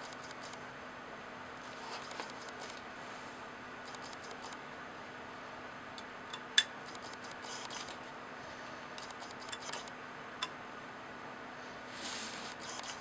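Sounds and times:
sharp clicks: 0.0 - 0.6, 3.8 - 4.6.

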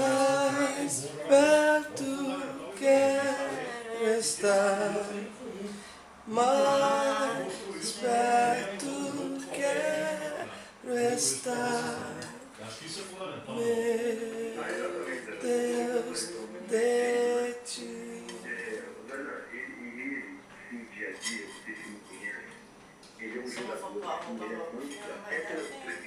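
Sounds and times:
woman singing unaccompanied: 0.0 - 12.5, 13.5 - 18.8.

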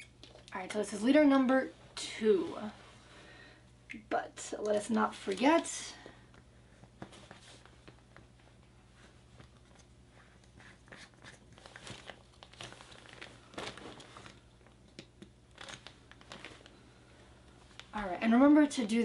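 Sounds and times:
pillow and cover rustling: 11.6 - 14.5.

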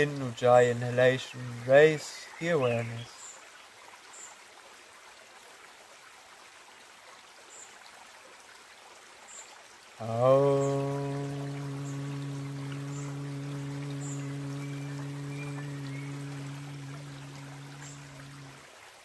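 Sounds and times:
man chanting om: 0.0 - 3.2, 10.0 - 18.7
creek rushing: 9.3 - 19.0.

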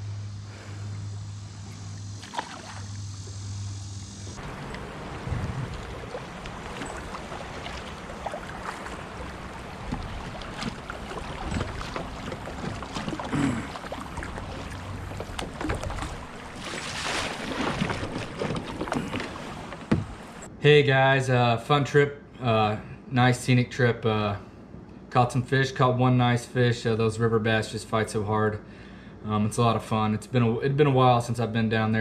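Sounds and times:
paddle strokes splashing: 1.7 - 2.9, 4.4 - 20.5
water rippling past hull: 4.4 - 20.5.

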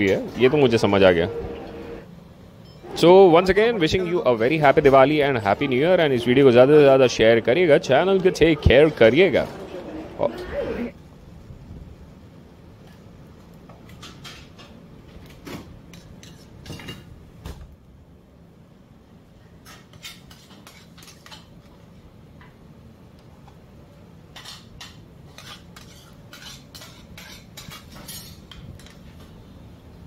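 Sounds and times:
steady low hum: 0.0 - 13.4
dishes clinking and clattering: 24.3 - 29.0.

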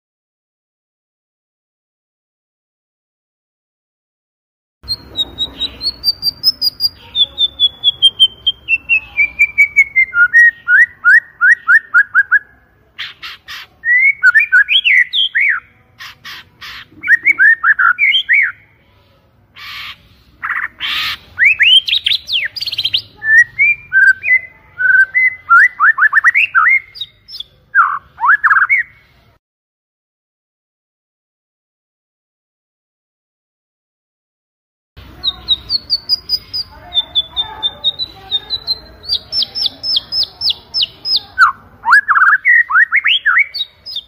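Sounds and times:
bird singing varied song: 4.8 - 18.8, 19.6 - 29.4, 35.0 - 44.0.

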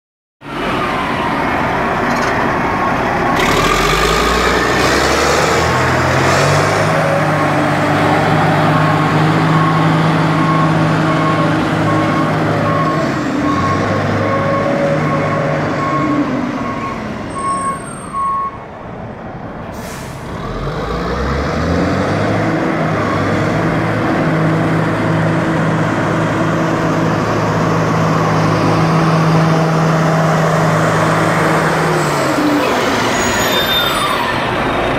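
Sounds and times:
diesel engine revving: 0.5 - 17.4, 19.8 - 34.9
reversing alarm beeping: 8.7 - 18.6.

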